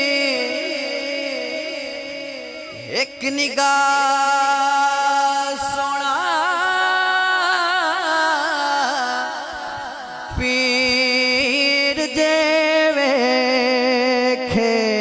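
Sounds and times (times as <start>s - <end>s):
man singing melodically: 0.0s - 15.0s.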